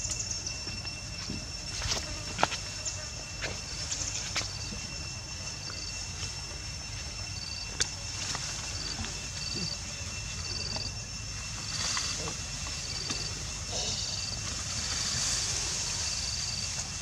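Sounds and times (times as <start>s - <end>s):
insects chirping in trills: 0.0s - 17.0s.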